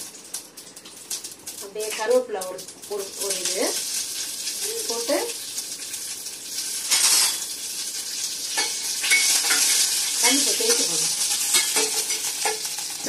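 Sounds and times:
chillies sizzling in hot oil: 0.0s - 13.0s.

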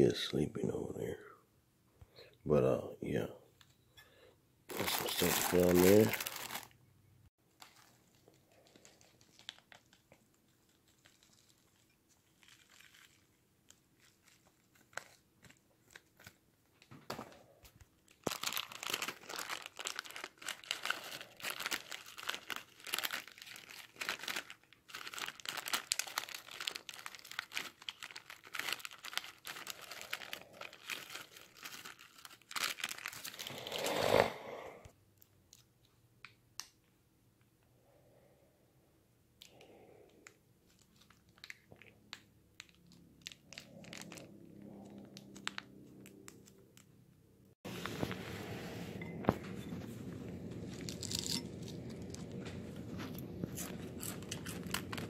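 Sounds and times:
plastic bag crinkling: 4.7s - 6.8s, 7.5s - 33.9s, 40.2s - 46.9s, 49.0s - 55.0s.

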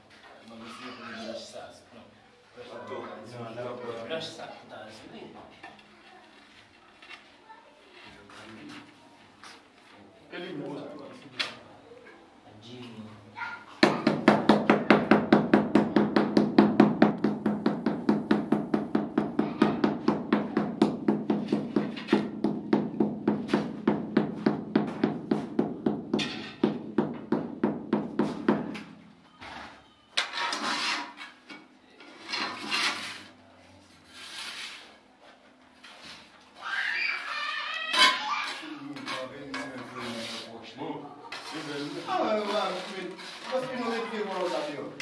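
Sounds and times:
rasping scrapes of sand: 34.0s - 35.0s.

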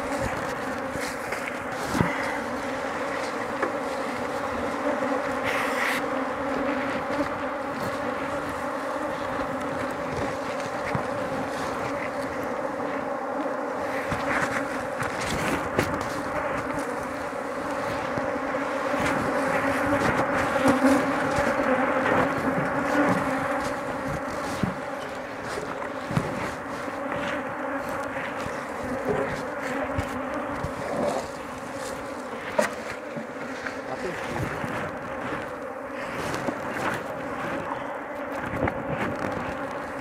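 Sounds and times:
honey bees buzzing: 0.0s - 40.0s.

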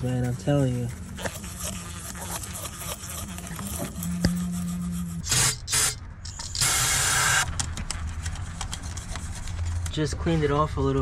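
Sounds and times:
electric toothbrush motor buzzing: 1.2s - 7.5s
aerosol can spraying: 6.6s - 7.5s.

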